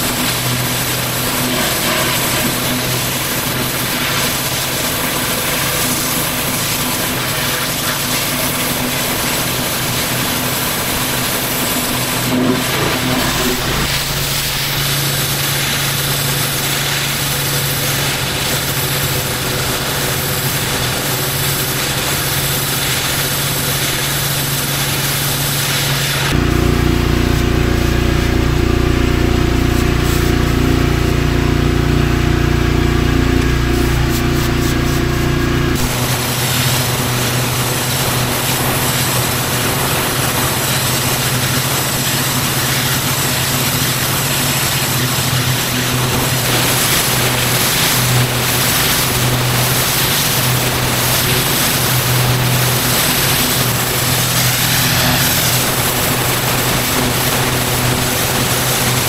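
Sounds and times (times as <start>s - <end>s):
pressure washer engine running: 0.0s - 59.0s
high hiss: 35.8s - 59.0s.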